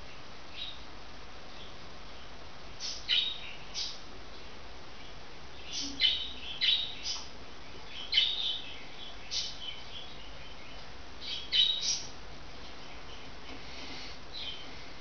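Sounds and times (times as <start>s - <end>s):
budgerigar chirping: 2.8s - 4.0s, 5.6s - 7.3s, 7.9s - 12.1s.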